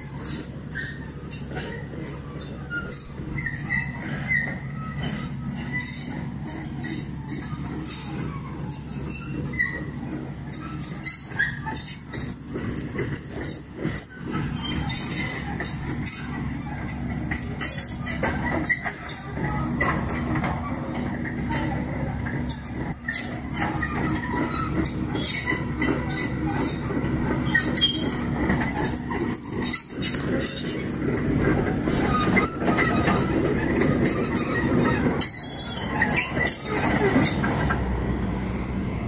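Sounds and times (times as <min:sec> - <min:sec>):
excavator diesel engine running: 0:00.0 - 0:39.0
steel tracks squealing and knocking: 0:00.0 - 0:39.0.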